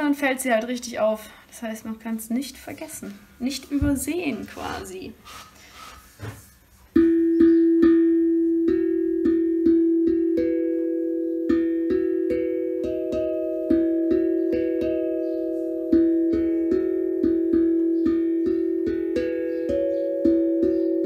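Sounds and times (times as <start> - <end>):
steel tongue drum melody: 6.9 - 21.0.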